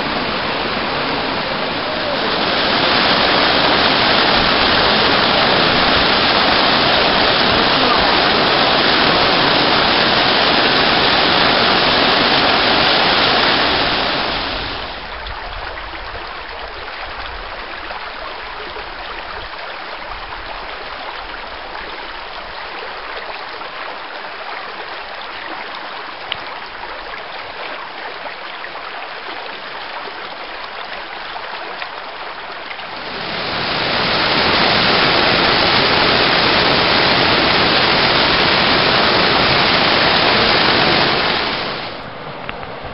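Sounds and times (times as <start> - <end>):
waterfall rushing: 0.0 - 15.2, 32.3 - 42.1
creek burbling over stones: 0.0 - 42.9.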